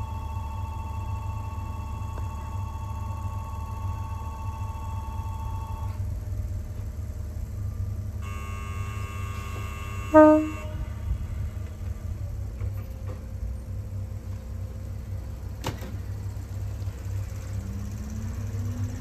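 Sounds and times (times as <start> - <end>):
low train rumble: 0.0 - 19.0
multi-tone signal: 8.2 - 11.0
steady electronic tone: 8.2 - 11.1
train horn blast: 8.2 - 12.1.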